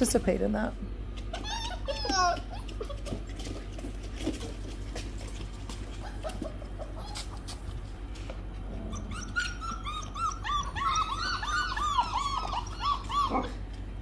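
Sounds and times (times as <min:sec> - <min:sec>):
puppies whining and yipping: 0:01.2 - 0:03.7, 0:05.7 - 0:07.8, 0:08.7 - 0:14.0.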